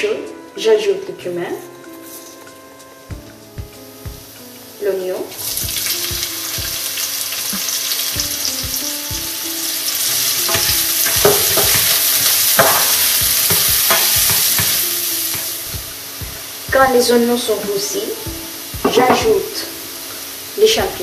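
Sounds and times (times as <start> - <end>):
onion sizzling in hot oil: 1.8 - 21.0
spatula scraping and tapping pan: 10.4 - 16.4.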